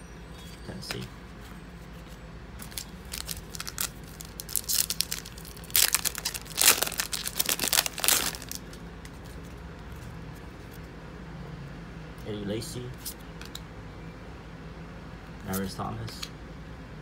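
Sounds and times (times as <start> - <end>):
foil wrapper tearing and crinkling: 2.6 - 9.2.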